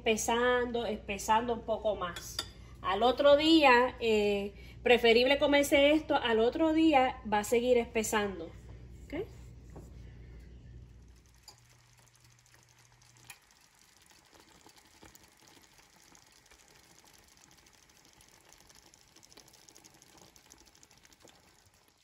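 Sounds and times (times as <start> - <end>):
low hum: 0.0 - 18.2
rice pudding bubbling in a pot: 8.7 - 22.0.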